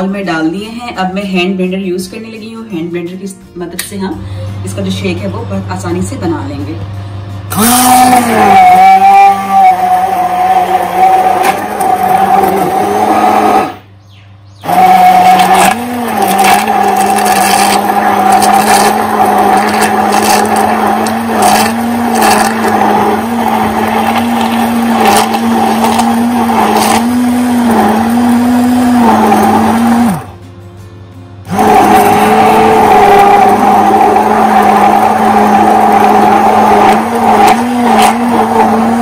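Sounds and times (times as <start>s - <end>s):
hand blender motor whine: 7.5s - 13.8s, 14.6s - 30.4s, 31.5s - 39.0s.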